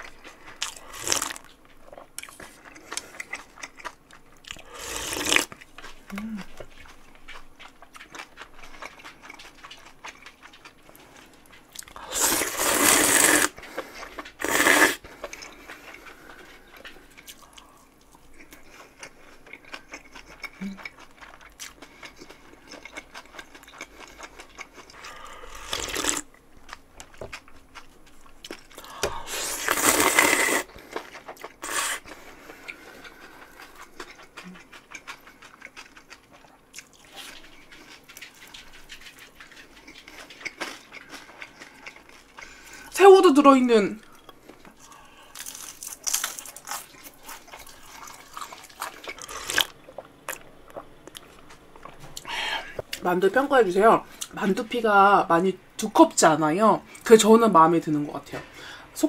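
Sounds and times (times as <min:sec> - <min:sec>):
quiet chewing: 0:00.0 - 0:43.0, 0:44.0 - 0:53.1, 0:53.9 - 0:54.6
loud slurping of noodles: 0:12.0 - 0:13.6, 0:14.4 - 0:15.0, 0:29.3 - 0:30.7, 0:31.6 - 0:32.1.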